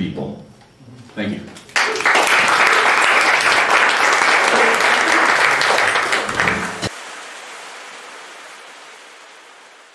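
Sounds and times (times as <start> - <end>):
audience applauding: 1.7 - 7.0
faint steady wash: 6.9 - 9.9.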